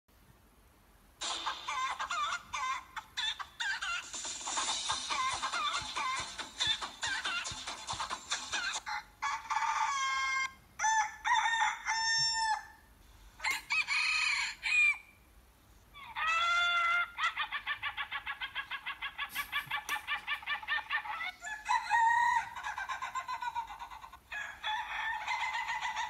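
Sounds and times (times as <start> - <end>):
chicken clucking: 1.2 - 10.6, 16.0 - 26.0
rooster crowing: 9.2 - 15.2, 21.2 - 22.8, 24.3 - 26.0.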